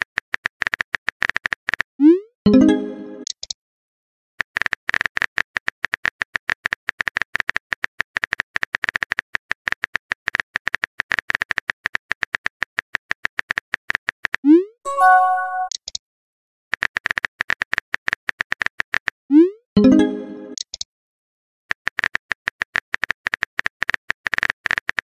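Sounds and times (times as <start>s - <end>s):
keyboard typing clicks: 14.9s - 16.0s.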